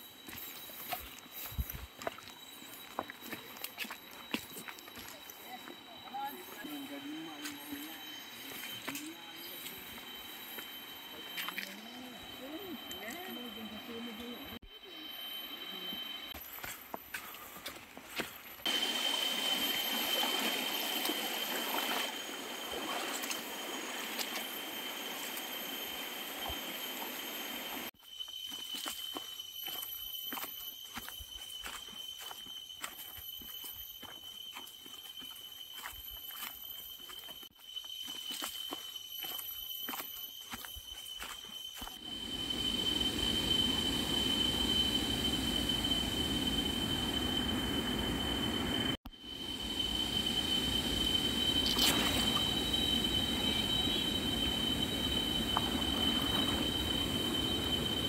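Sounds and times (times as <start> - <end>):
footsteps on trail: 0.0 - 10.7, 16.4 - 18.8, 28.0 - 42.1
high insect whine: 0.0 - 58.0
steady high-pitched tone: 0.0 - 58.0.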